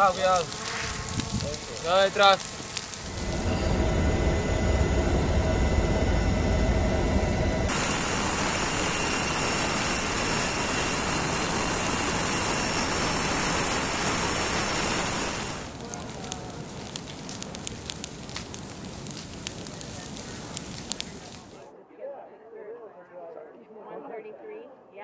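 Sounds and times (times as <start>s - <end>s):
low rumble with tones: 1.2s - 21.6s
helicopter engine and rotor: 3.1s - 15.7s.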